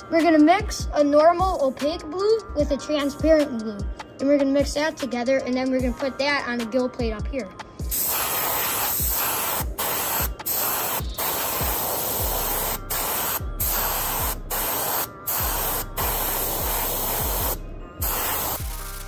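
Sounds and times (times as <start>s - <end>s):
airbrush spraying hiss: 7.9s - 19.0s.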